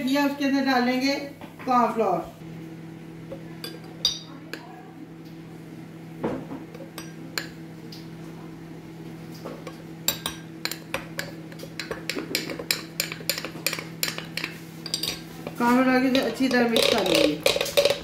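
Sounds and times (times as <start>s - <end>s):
steady low hum: 2.1s - 18.0s
metal spoon clinking on glass jar: 10.1s - 15.2s.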